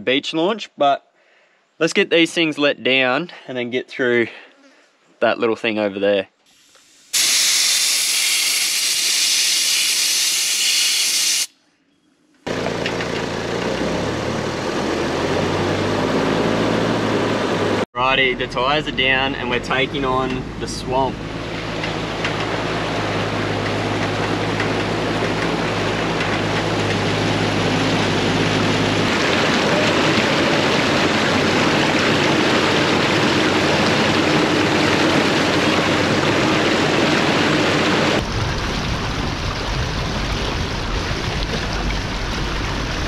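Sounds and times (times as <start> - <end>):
vehicle engine running: 12.5 - 38.3
water rushing and splashing: 19.5 - 43.0.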